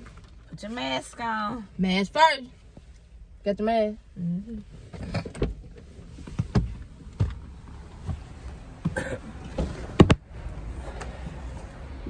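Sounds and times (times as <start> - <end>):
clicks and knocks inside a car: 4.8 - 11.2.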